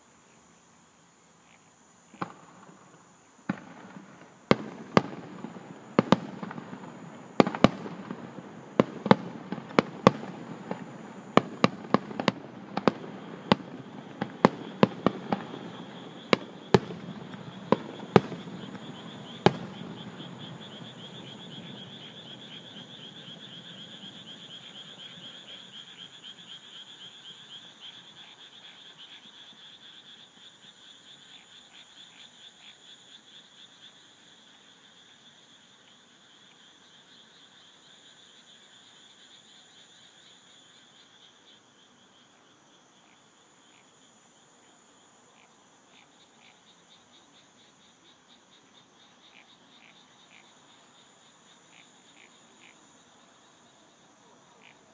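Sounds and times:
frogs chorus: 0.0s - 54.9s
high insect trill: 0.0s - 54.9s
fireworks burst rumble: 2.1s - 25.4s.

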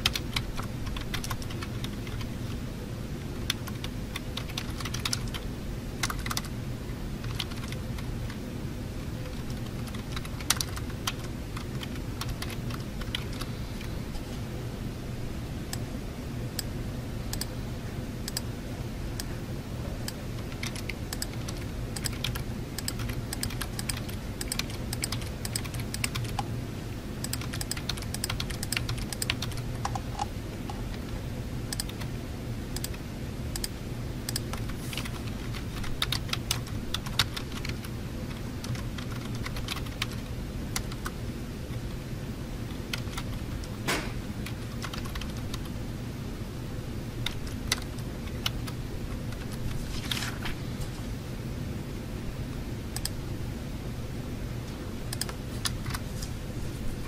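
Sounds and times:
typing on computer keyboard: 0.0s - 2.3s, 3.4s - 5.4s, 6.0s - 6.5s, 7.2s - 8.1s, 9.2s - 13.5s, 20.1s - 26.5s, 27.2s - 31.1s, 31.7s - 32.1s, 34.3s - 41.2s, 42.7s - 43.8s, 44.4s - 45.7s, 47.2s - 49.7s, 55.1s - 56.0s
low room hum: 0.0s - 57.0s.

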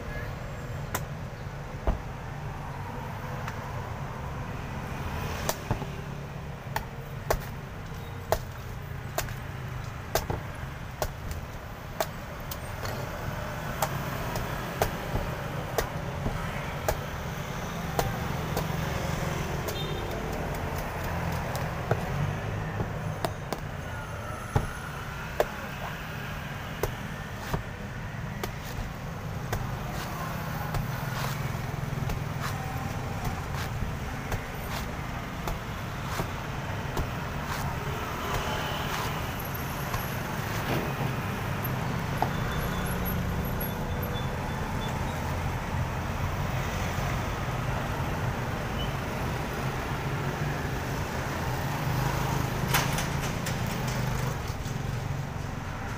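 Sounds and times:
road traffic rumble: 0.0s - 55.9s
cleaver chopping coconut husk: 4.8s - 41.5s.

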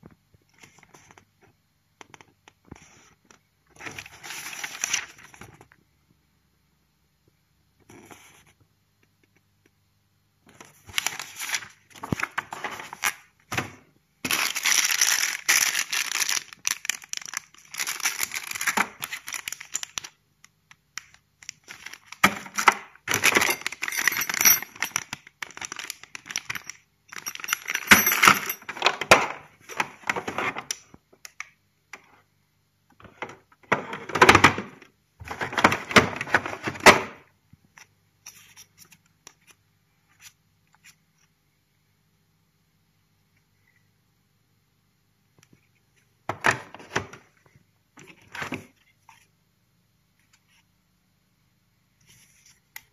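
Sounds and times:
plastic bags crinkling: 14.2s - 20.2s, 21.0s - 28.9s
parts clinking in plastic case: 21.7s - 30.6s.

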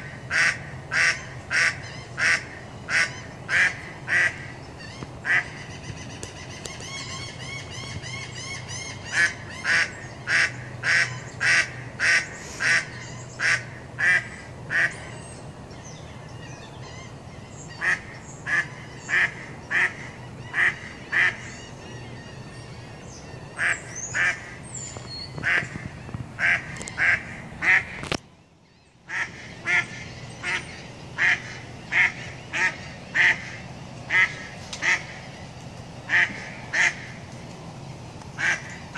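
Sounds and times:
duck quacking: 0.3s - 4.5s, 5.2s - 5.5s, 9.1s - 14.9s, 17.8s - 21.4s, 26.4s - 28.0s, 29.1s - 35.2s, 36.1s - 37.1s, 38.4s - 38.7s.

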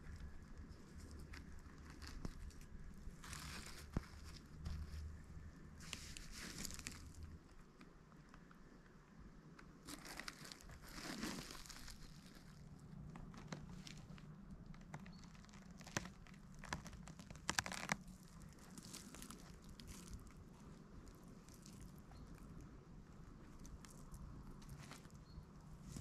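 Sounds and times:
dry rustling and crinkling: 0.0s - 26.0s.

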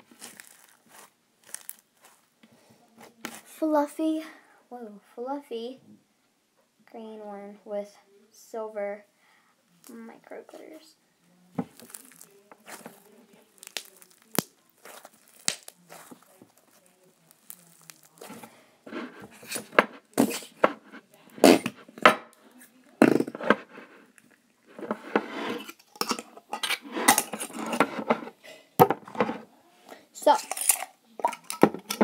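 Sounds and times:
slime crackling and popping: 0.0s - 2.2s, 11.7s - 18.5s
slime squelching: 0.0s - 2.2s, 11.6s - 21.9s.

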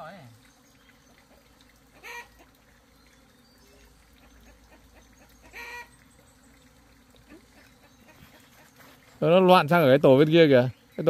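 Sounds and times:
chicken call: 5.4s - 5.9s.

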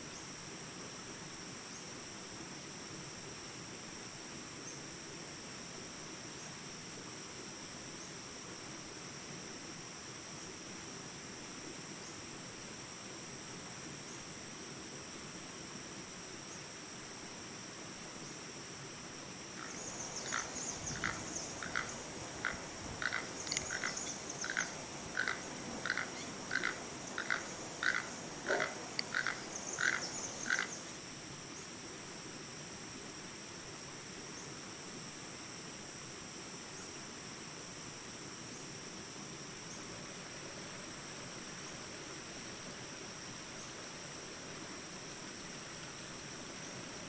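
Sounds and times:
high-pitched insect buzz: 19.4s - 31.0s
toucan short calls: 19.6s - 30.9s.

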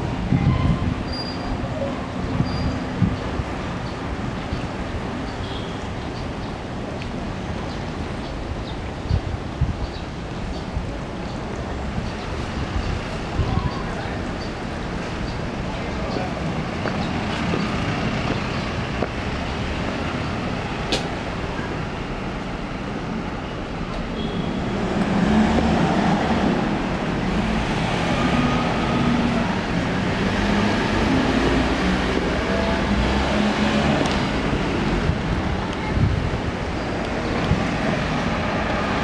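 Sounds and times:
road traffic: 0.0s - 39.0s
engine hum passing close: 24.6s - 39.0s.

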